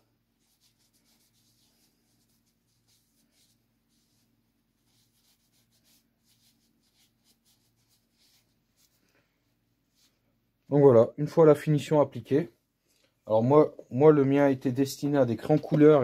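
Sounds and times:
cloth rubbing on wood: 0.4 - 9.1.

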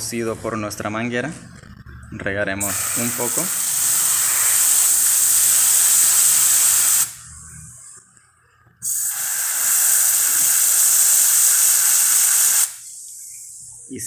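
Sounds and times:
hose nozzle spraying water: 2.6 - 7.1, 8.9 - 12.8.

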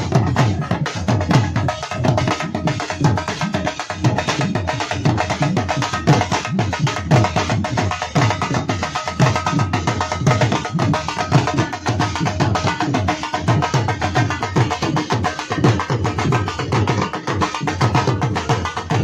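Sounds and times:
barrel drums beaten fast: 0.0 - 19.0.

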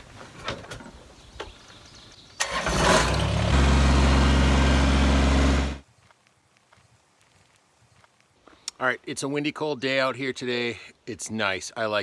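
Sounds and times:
diesel engine running: 2.4 - 5.8
tractor starter cranking: 2.4 - 5.8.

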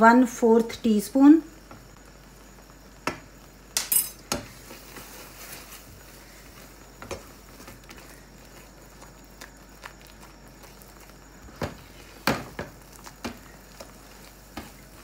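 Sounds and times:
spatula stirring in a pan: 4.3 - 15.0.

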